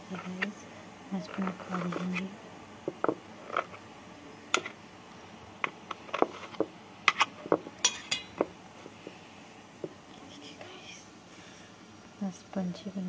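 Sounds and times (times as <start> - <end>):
knife scraping metal plate: 5.6 - 8.4.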